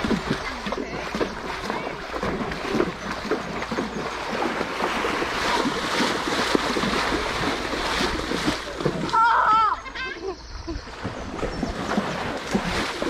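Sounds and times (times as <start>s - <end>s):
river water splashing: 0.0s - 13.0s.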